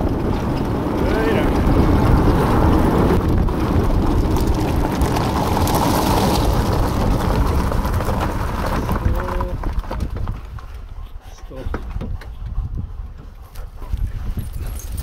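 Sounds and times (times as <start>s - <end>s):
cart wheels rolling over gravel: 0.0s - 10.9s.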